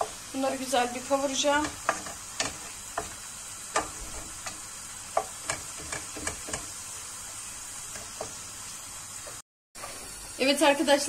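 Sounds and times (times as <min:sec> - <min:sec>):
meat and peppers sizzling in oil: 0:00.0 - 0:11.0
wooden spatula scraping a pan: 0:01.1 - 0:04.6, 0:05.2 - 0:06.8.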